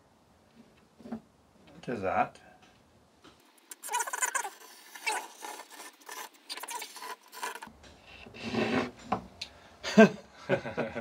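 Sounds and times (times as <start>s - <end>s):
chalk scraping on blackboard: 3.9s - 7.7s, 8.4s - 8.9s.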